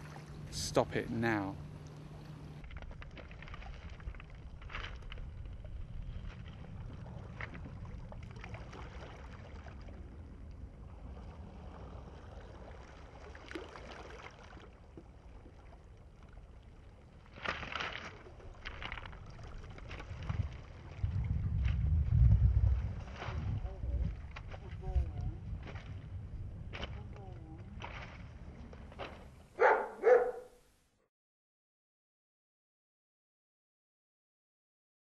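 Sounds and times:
faint water sounds: 0.0s - 30.5s
wind rumble on microphone: 2.6s - 13.2s, 18.3s - 29.8s.

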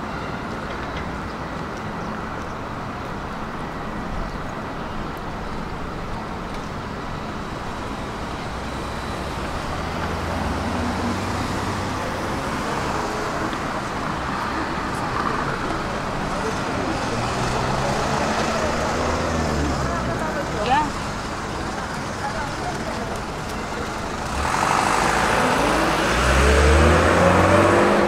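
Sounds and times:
road traffic: 0.0s - 28.0s
vehicle engine passing close: 24.2s - 28.0s.

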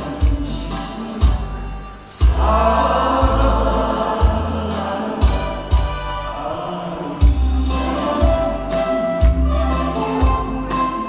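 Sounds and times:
choir-like singing: 2.0s - 11.0s
heavy bass beat: 2.2s - 10.9s.

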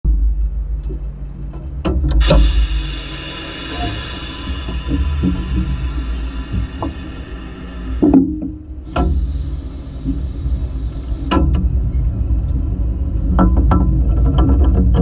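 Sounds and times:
running gear rumble: 0.2s - 15.0s
steam hissing: 2.2s - 12.4s.

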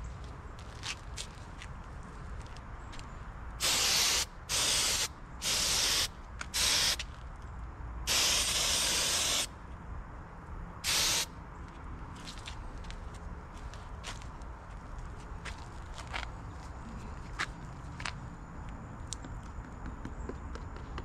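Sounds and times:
spray adhesive hissing: 3.6s - 7.0s, 8.1s - 9.5s, 10.8s - 11.3s.

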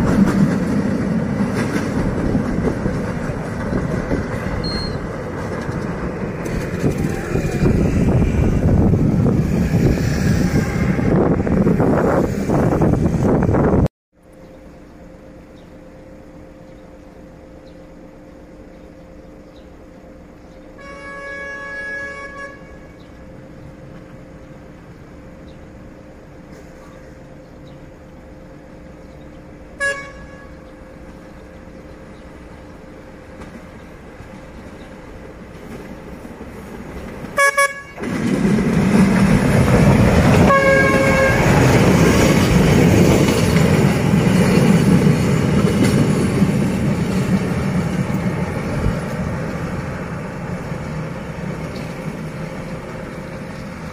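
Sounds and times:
locomotive horn: 10.3s - 11.8s, 20.7s - 23.0s, 29.8s - 30.7s, 37.3s - 38.2s, 40.2s - 43.0s.

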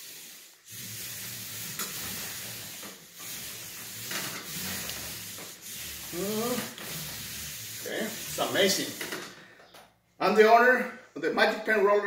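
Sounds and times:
paint roller rubbing on wall: 0.0s - 9.2s.

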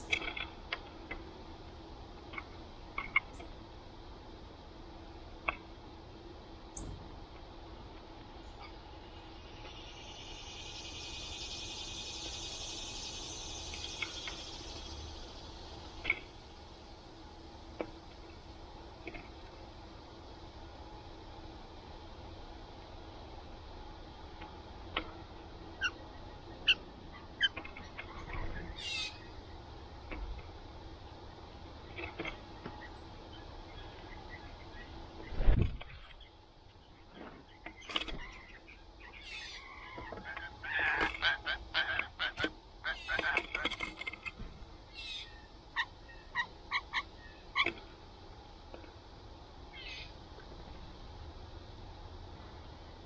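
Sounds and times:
blue jay calling: 8.5s - 16.6s, 25.8s - 29.6s, 38.2s - 43.7s, 44.9s - 47.7s, 49.7s - 50.2s.

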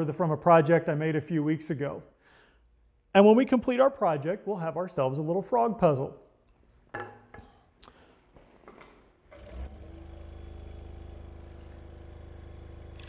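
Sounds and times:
scroll saw humming: 9.3s - 13.0s.

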